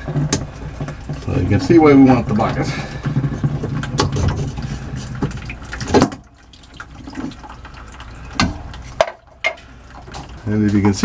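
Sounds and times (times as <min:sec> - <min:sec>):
water pouring into plastic bucket: 0:00.0 - 0:11.0.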